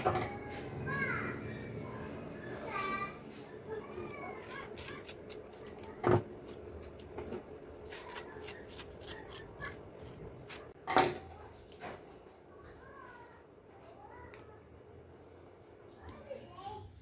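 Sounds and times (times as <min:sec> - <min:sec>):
scissors snipping leaf: 0:04.0 - 0:06.0, 0:07.9 - 0:10.2.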